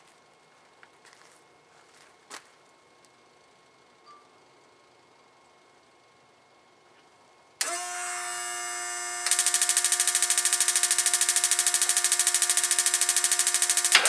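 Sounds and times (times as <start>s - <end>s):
electric motor whine: 7.6s - 14.0s
fast even pulsing buzz: 7.6s - 14.0s.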